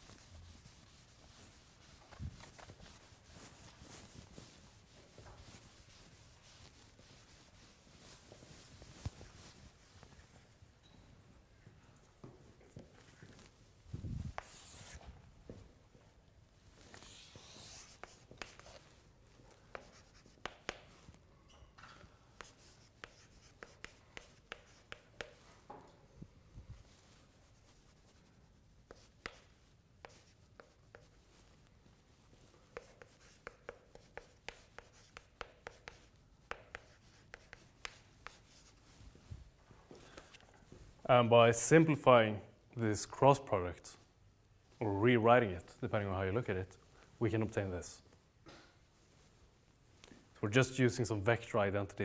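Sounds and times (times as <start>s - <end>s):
chalk tapping and scratching: 0.0s - 10.4s, 14.2s - 15.1s, 16.8s - 21.2s, 22.4s - 25.6s, 26.9s - 31.6s, 32.3s - 39.0s.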